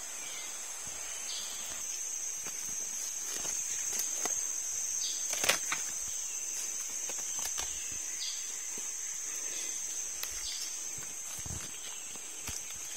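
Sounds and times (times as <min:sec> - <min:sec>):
insects buzzing: 0:00.0 - 0:12.9
footsteps crunching on dry leaves: 0:01.6 - 0:09.0, 0:09.9 - 0:12.9
twig snapping: 0:05.2 - 0:06.0, 0:07.0 - 0:07.8.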